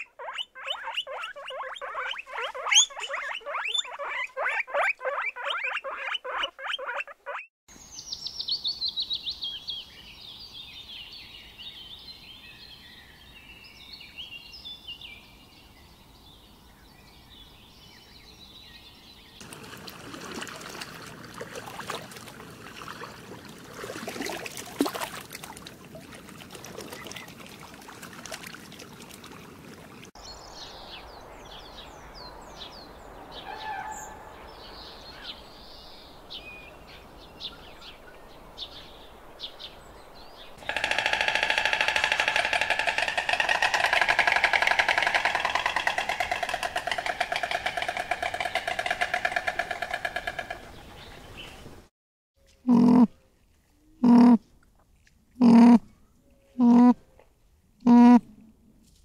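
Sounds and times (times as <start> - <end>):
small birds chirping: 0.0 - 19.5.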